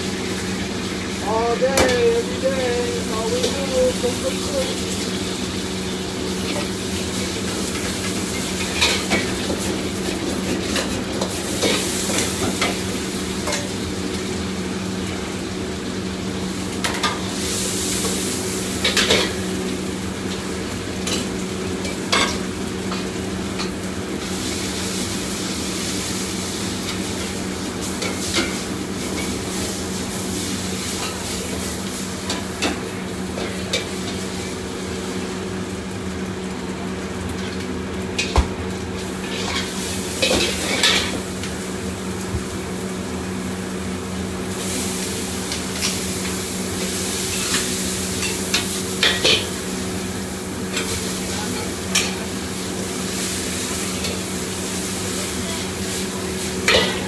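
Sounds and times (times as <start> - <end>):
steady hum: 0.0 - 9.2
food sizzling in a wok: 0.0 - 57.0.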